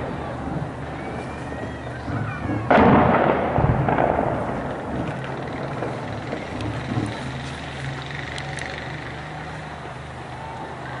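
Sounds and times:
explosion boom echoing: 2.0 - 7.2.

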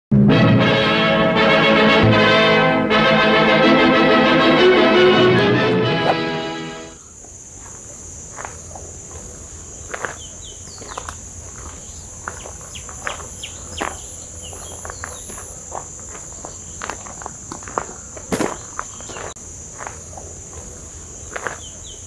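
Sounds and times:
footsteps on gravel: 7.2 - 22.0
bird chirps: 9.7 - 15.5.

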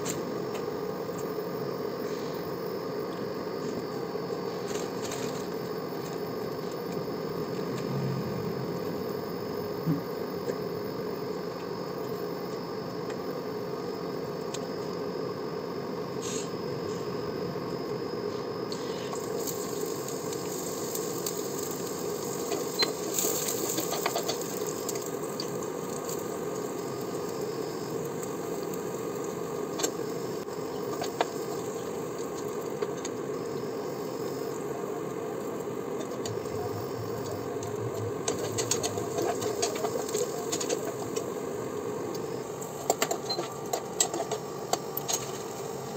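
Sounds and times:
low hum: 7.2 - 10.9.

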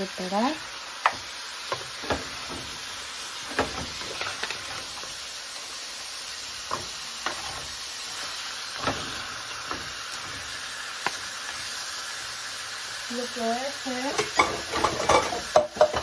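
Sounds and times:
meat sizzling in a pan: 0.0 - 16.0
wooden spoon knocking a pan: 1.0 - 2.8, 14.2 - 16.0.

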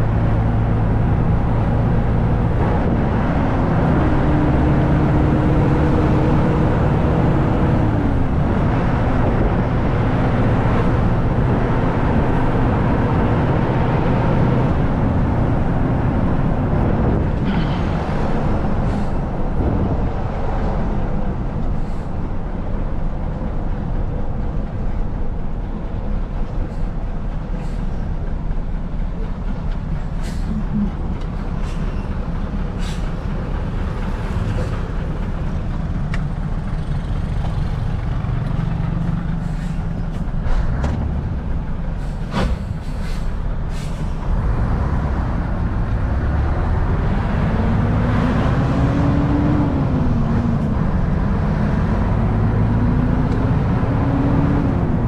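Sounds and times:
truck diesel engine running: 0.0 - 55.0
air-brake hisses and clicks: 30.2 - 30.8, 32.8 - 33.2, 42.0 - 44.2.

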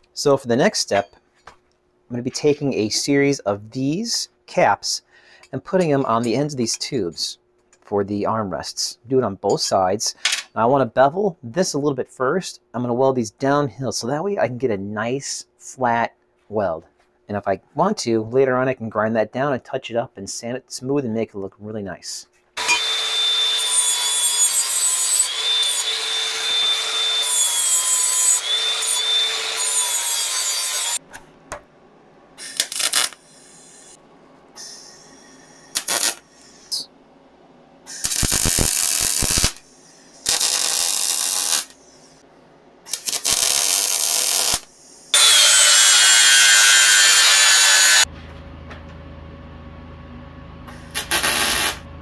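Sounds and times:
grinder motor whining: 22.6 - 31.0, 43.0 - 48.1
arc welding crackles: 32.4 - 33.2, 35.8 - 36.8, 38.0 - 39.6, 40.2 - 41.8, 42.9 - 44.7, 50.9 - 51.9.

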